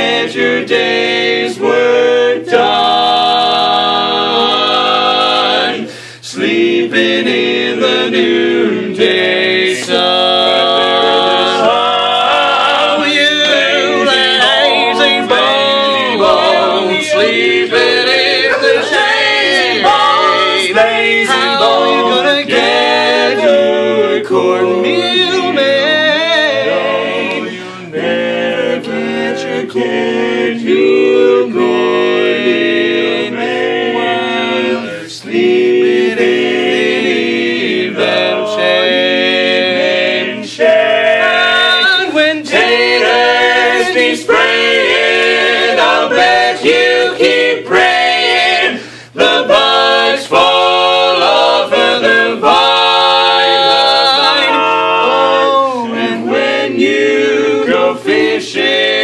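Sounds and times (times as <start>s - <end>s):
male quartet singing a cappella: 0.0s - 59.0s
singers breathing: 5.9s - 6.3s, 27.5s - 27.9s, 48.7s - 49.2s.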